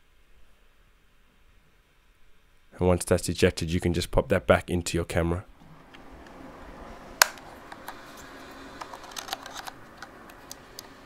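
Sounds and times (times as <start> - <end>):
plastic card door clicking open: 8.8 - 10.9.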